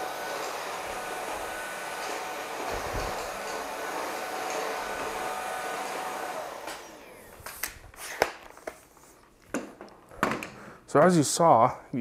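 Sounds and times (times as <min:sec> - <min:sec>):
vacuum motor whining: 0:00.0 - 0:07.7.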